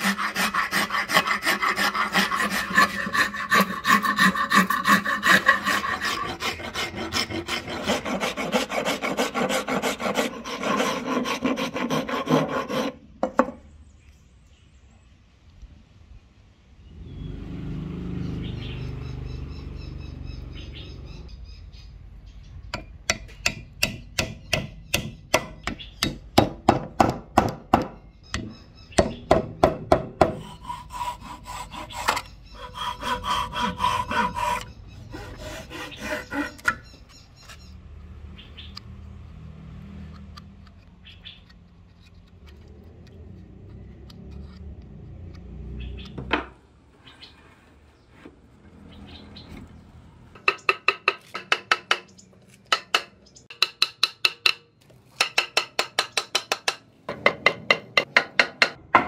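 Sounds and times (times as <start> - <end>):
hand saw cutting wood: 0.0 - 13.0, 29.0 - 37.0
rubbing and handling of wood: 0.0 - 13.6, 29.0 - 37.7, 46.3 - 49.8.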